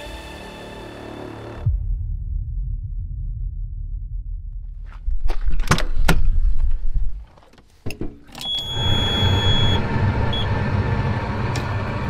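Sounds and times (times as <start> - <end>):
door and latch clicks: 5.2 - 6.3
high warning buzzer: 8.5 - 10.6
diesel engine starting and idling: 8.5 - 12.0.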